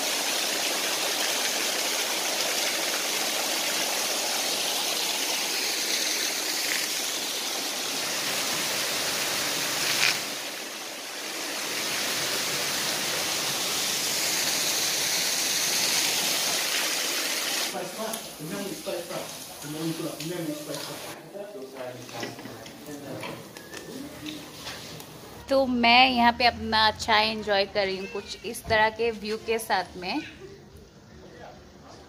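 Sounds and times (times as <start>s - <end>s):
small waterfall splashing: 0.0s - 21.2s.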